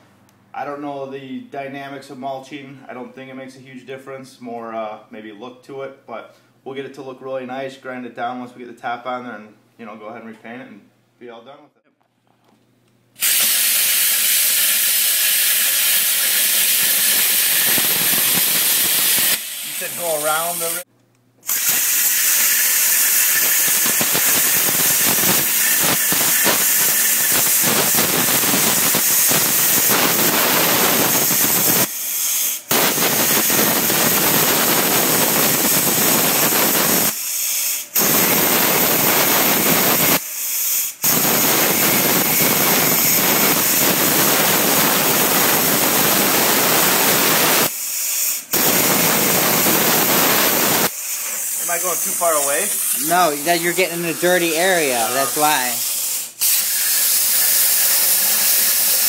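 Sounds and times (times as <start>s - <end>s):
plasma cutter hissing: 13.2s - 59.0s.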